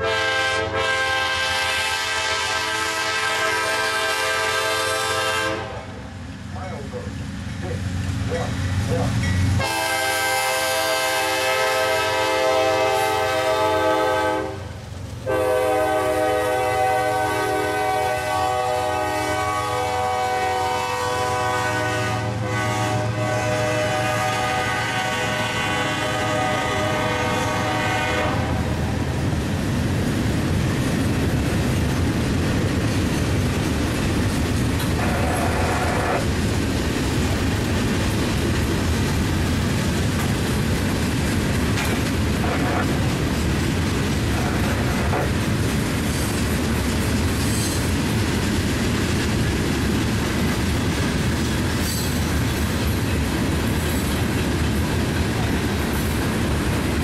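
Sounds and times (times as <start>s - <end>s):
locomotive air horn blasts: 0.0s - 6.0s, 9.6s - 28.8s, 35.0s - 36.2s
wheels clacking over rail joints: 29.2s - 35.1s, 36.2s - 57.0s.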